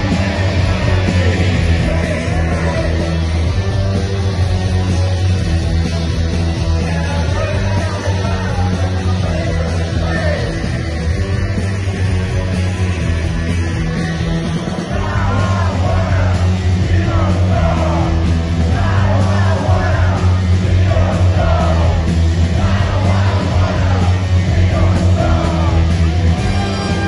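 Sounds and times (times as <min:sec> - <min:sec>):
live punk rock band playing: 0:00.0 - 0:27.0
man yelling and singing: 0:00.5 - 0:03.2, 0:06.7 - 0:10.7, 0:22.6 - 0:27.0.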